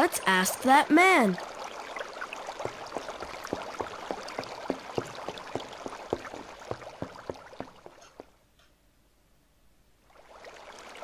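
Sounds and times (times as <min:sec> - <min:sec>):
water bubbling: 0:01.2 - 0:08.2, 0:10.1 - 0:11.0
faint water hiss: 0:09.4 - 0:11.0.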